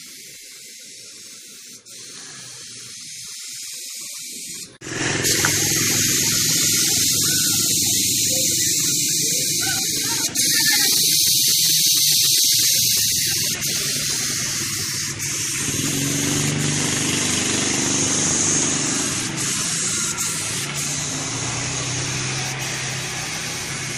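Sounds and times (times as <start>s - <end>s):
air compressor humming: 0.0s - 23.9s
spray gun hissing: 0.0s - 23.9s.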